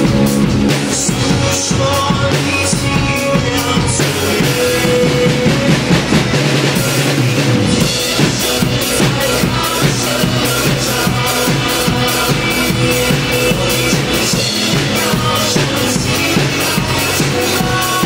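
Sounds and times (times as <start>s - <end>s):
acoustic drum kit playing: 0.0s - 18.0s
backing music chords: 0.0s - 18.0s.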